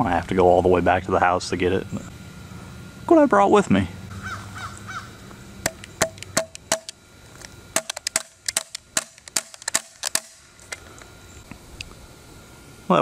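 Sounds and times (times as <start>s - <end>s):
tapping nail into wooden board: 5.6s - 7.0s, 7.8s - 10.4s.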